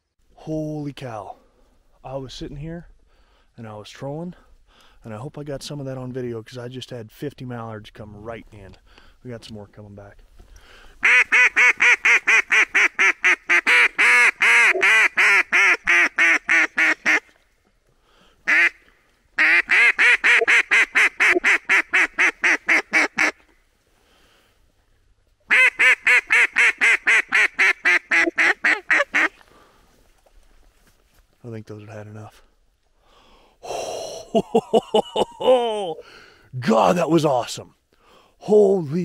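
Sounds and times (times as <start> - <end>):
duck call quacking: 11.0 - 17.2, 18.5 - 18.8, 19.4 - 23.4, 25.5 - 29.4.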